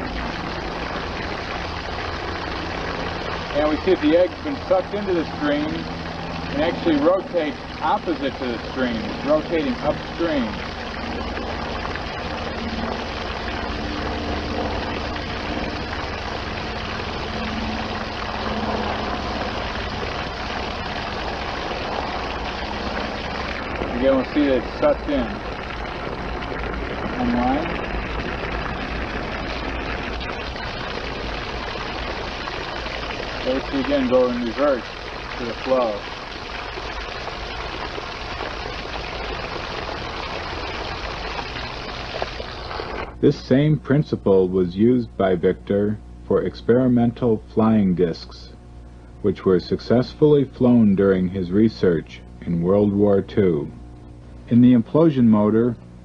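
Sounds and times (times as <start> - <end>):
water rushing from hose: 0.0 - 43.3
constant low rumble: 0.0 - 56.0
faint low hum: 0.0 - 56.0.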